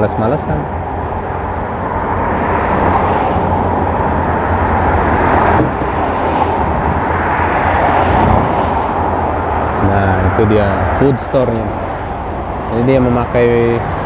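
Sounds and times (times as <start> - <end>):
road traffic rushing past: 0.0 - 14.0.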